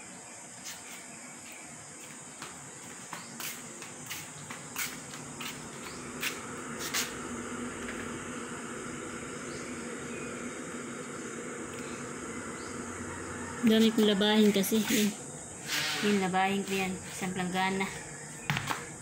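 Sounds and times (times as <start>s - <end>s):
low hum with hiss: 0.0s - 19.0s
footsteps on concrete: 0.6s - 7.2s, 18.3s - 18.9s.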